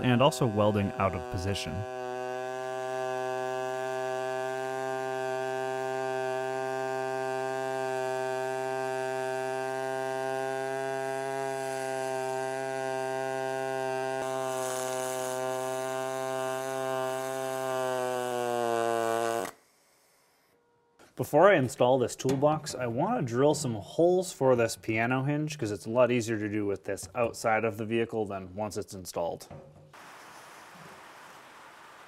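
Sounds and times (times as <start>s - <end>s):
welding arc buzzing: 0.0s - 20.6s.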